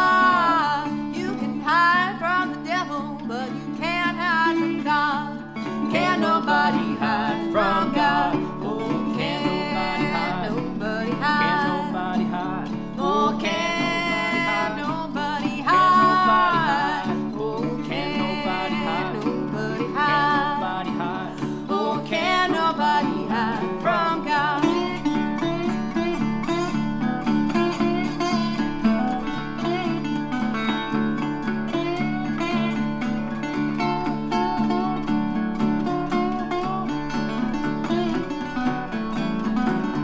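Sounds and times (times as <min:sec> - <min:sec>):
woman and man singing duet: 0:00.0 - 0:25.2
acoustic guitars: 0:00.0 - 0:40.0.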